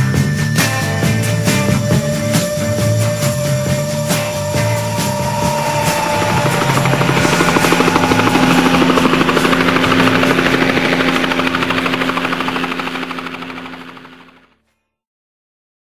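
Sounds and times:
background music: 0.0 - 12.5
helicopter rotor chop: 0.2 - 14.6
turbine hum: 1.8 - 14.4.

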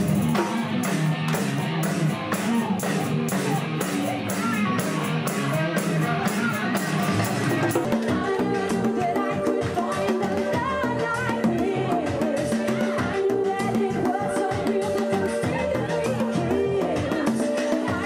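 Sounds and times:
guitar strumming: 0.0 - 8.0
live band music: 0.0 - 18.0.

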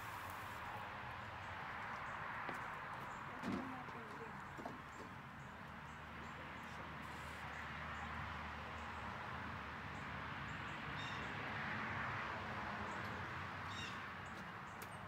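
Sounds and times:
outdoor hiss: 0.0 - 0.8.

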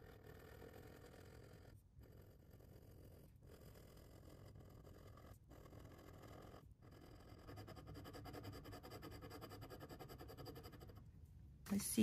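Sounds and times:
pen scratching on paper: 0.0 - 11.1.

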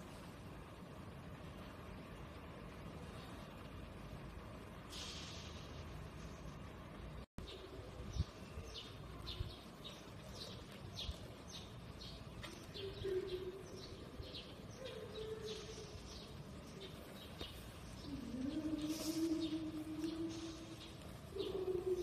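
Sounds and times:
small birds chirping: 5.0 - 22.0
low cooing notes: 18.0 - 22.0.

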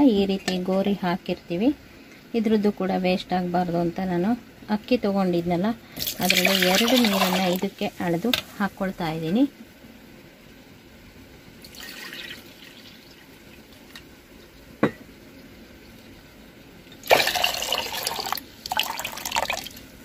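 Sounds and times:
water pouring into a pot: 6.0 - 7.7, 11.6 - 14.0, 17.0 - 19.9.

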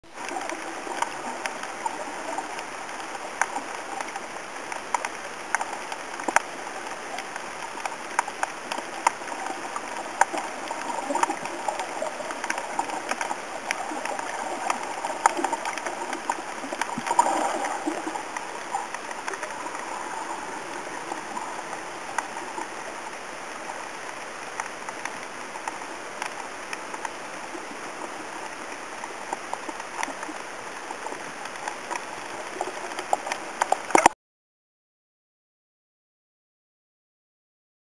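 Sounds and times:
sharp underwater clicks and crackles: 0.0 - 34.2
underwater watery hiss: 0.2 - 29.1.

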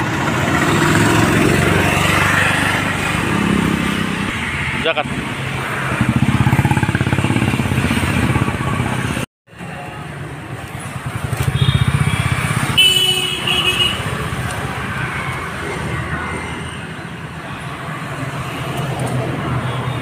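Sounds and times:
motorcycle engine: 0.0 - 9.3, 10.3 - 17.3
traffic rumble: 0.0 - 20.0
vehicle horn toot: 11.4 - 14.1.

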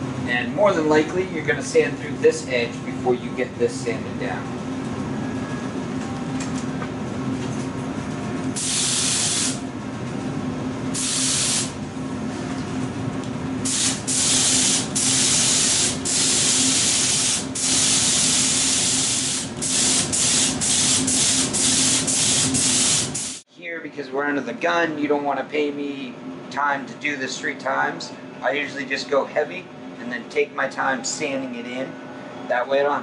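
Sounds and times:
steady low hum: 0.0 - 33.0
spray gun air hiss: 8.6 - 9.6, 11.0 - 11.8, 13.6 - 23.4.

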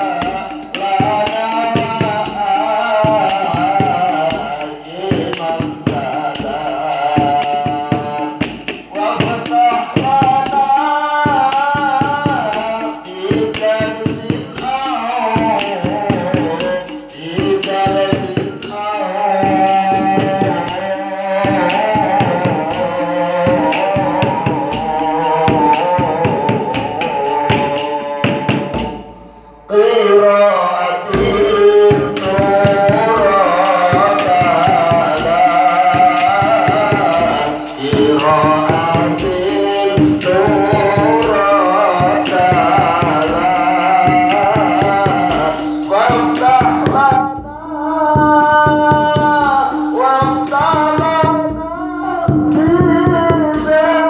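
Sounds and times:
jingling percussion: 0.0 - 29.4, 31.2 - 54.0
frame drums: 0.0 - 29.7, 31.1 - 54.0
woman singing into a microphone: 44.2 - 54.0.

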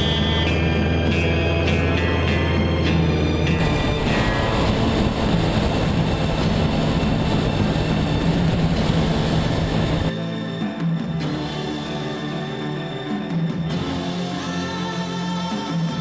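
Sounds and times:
car engine running at speed: 0.0 - 10.1
road noise: 0.0 - 10.1.

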